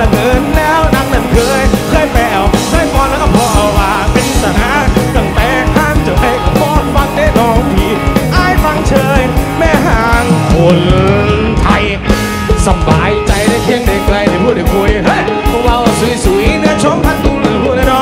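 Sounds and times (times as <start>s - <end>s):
drum kit beat: 0.0s - 18.0s
electric guitar: 0.0s - 18.0s
male singer singing: 0.0s - 18.0s.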